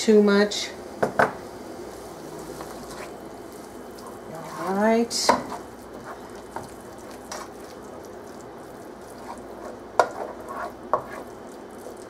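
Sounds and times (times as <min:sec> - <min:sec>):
faint sizzle: 0:00.0 - 0:12.0
spatula scraping metal pan: 0:09.2 - 0:11.3.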